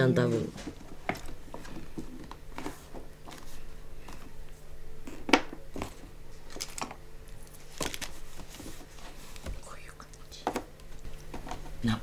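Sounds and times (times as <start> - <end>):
paper rustling: 0.3 - 4.3, 5.7 - 9.6.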